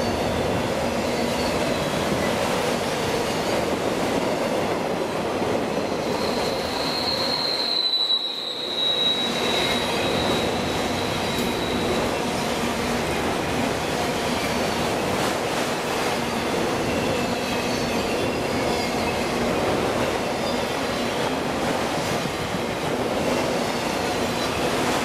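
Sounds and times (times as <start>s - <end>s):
high wheel squeal: 0.0s - 4.5s, 5.6s - 12.6s, 16.2s - 22.1s
train wheels rumbling on rail: 0.0s - 25.0s.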